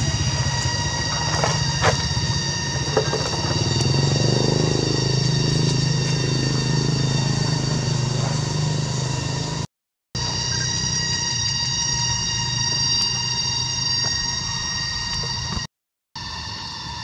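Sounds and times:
low engine hum: 0:00.0 - 0:09.7
high-pitched tones: 0:10.2 - 0:15.7.

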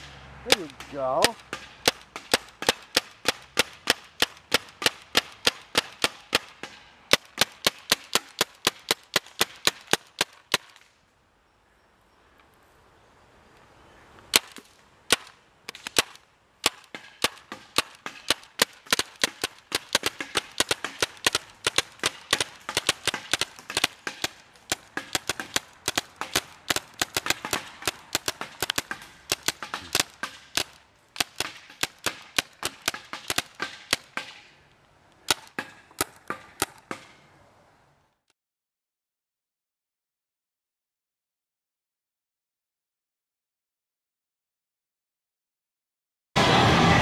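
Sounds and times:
paintball markers firing: 0:00.5 - 0:10.9, 0:14.3 - 0:34.6, 0:35.2 - 0:37.2.

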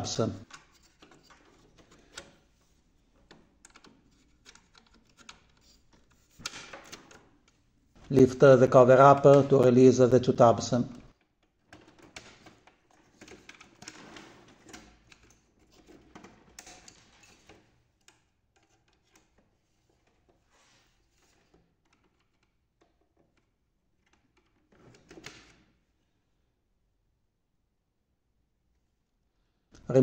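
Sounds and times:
plastic clicks and scraping: 0:00.4 - 0:07.6, 0:10.9 - 0:25.6.

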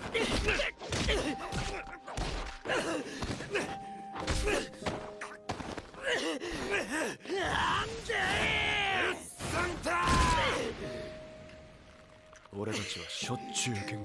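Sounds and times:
grunts and pained cries: 0:00.0 - 0:10.8.

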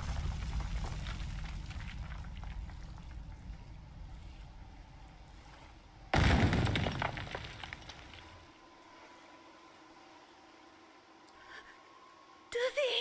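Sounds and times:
clattering debris: 0:06.1 - 0:08.4
crash of breaking stone: 0:06.1 - 0:08.4.

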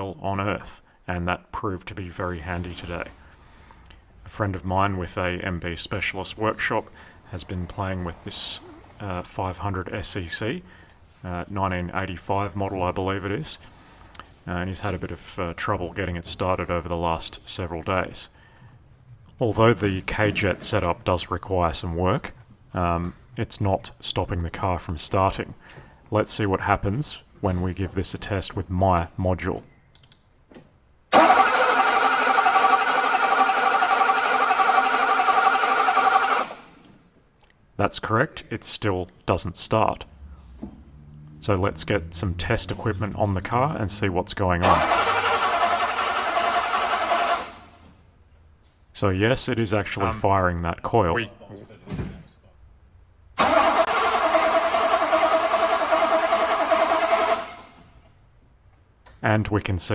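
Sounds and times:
car starter cranking: 0:31.1 - 0:36.7, 0:44.6 - 0:47.8, 0:53.4 - 0:57.8.

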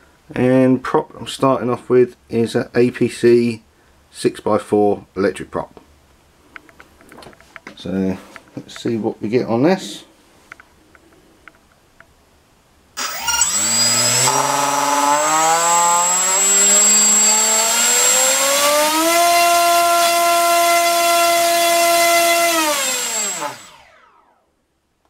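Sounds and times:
electric motor propeller whine: 0:13.0 - 0:24.5.

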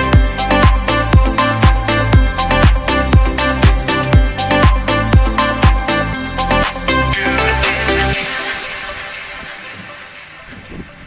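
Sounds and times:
electronic dance music: 0:00.0 - 0:11.0.

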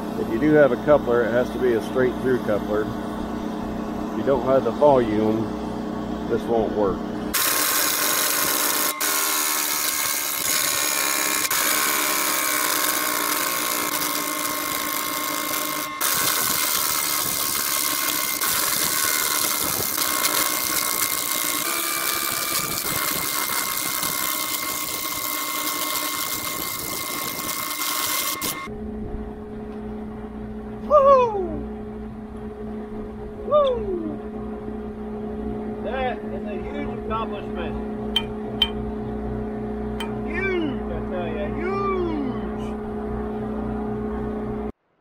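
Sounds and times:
low hum: 0:00.0 - 0:45.0
pneumatic air tool whining: 0:07.2 - 0:28.7.

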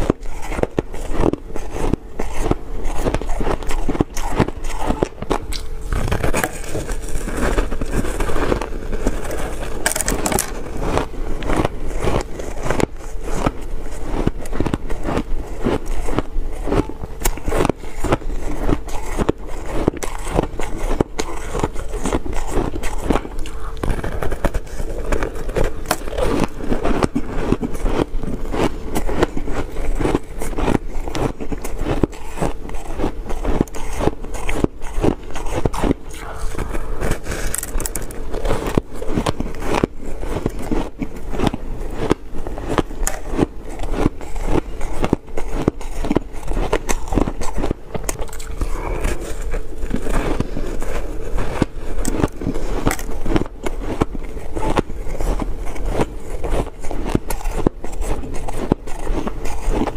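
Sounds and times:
chewing crunchy ice: 0:00.0 - 0:59.9.

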